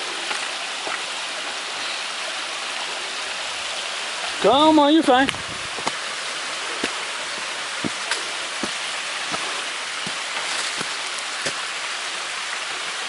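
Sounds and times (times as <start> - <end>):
creek rushing: 0.0 - 13.0
footsteps on trail: 5.3 - 11.9.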